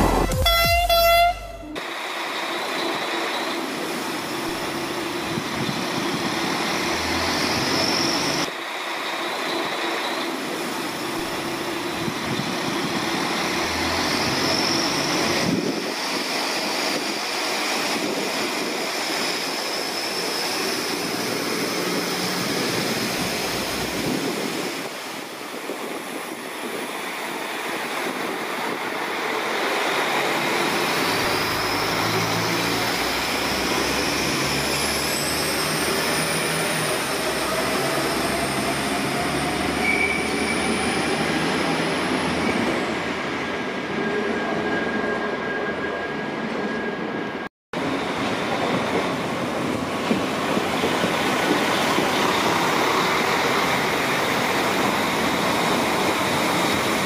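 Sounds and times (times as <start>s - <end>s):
diesel train passing: 0.0s - 57.0s.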